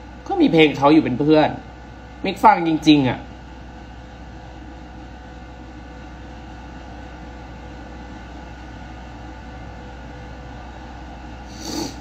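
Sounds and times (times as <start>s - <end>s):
low room hum: 0.0s - 12.0s
even hiss: 11.5s - 12.0s.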